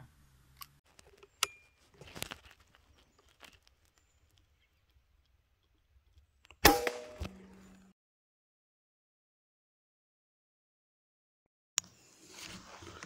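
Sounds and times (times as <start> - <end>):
suppressed rifle shot: 6.6 - 7.6.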